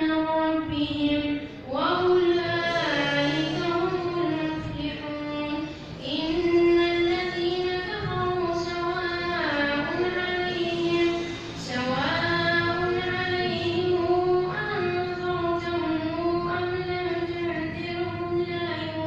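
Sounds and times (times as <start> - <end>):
boy chanting recitation: 0.0 - 19.0.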